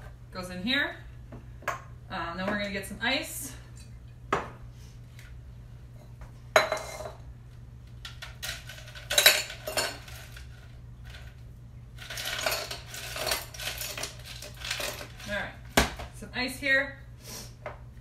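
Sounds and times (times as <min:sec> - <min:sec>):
ice and metal cocktail gear clinking: 0:08.4 - 0:10.4, 0:12.0 - 0:15.3.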